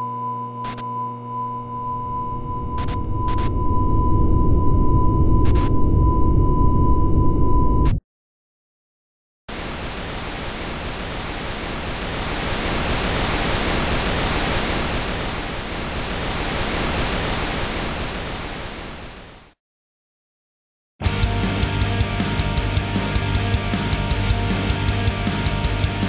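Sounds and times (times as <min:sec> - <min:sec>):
steady rushing hiss: 0:09.5 - 0:17.7.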